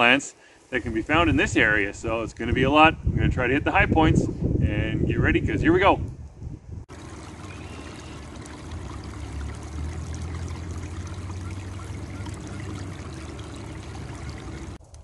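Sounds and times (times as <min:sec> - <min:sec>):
creek trickling over rocks: 0:06.9 - 0:15.0.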